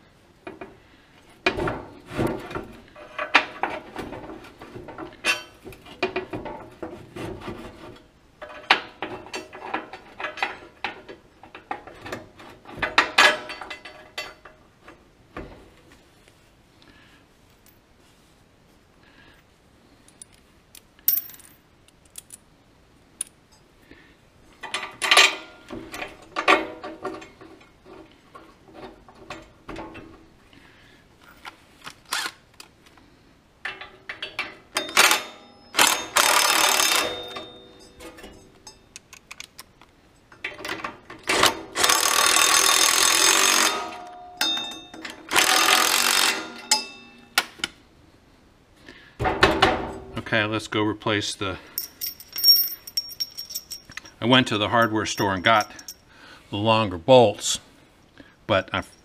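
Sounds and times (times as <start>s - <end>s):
small metal clinks and knocks: 13.0s - 14.6s, 20.0s - 22.5s, 36.8s - 40.8s, 43.6s - 45.2s, 51.6s - 56.1s
tool rapid mechanical clicking: 41.8s - 43.8s, 45.3s - 46.4s.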